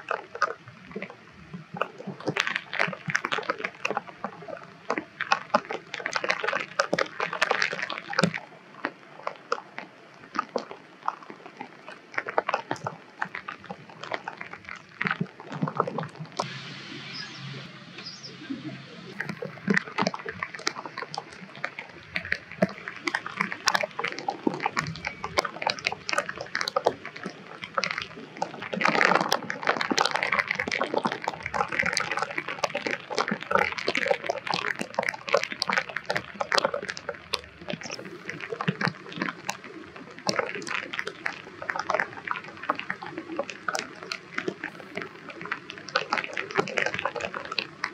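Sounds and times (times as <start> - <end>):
rain pattering: 0.0 - 47.9
sharp drips and splashes: 0.0 - 47.9.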